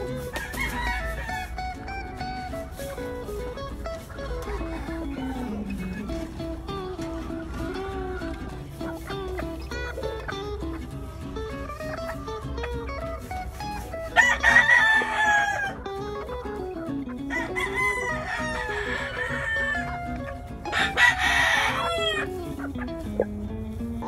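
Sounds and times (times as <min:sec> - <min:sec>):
rooster crowing: 0:00.0 - 0:02.1, 0:04.4 - 0:06.1, 0:13.8 - 0:15.9, 0:17.3 - 0:22.4
guitar music: 0:00.0 - 0:24.0.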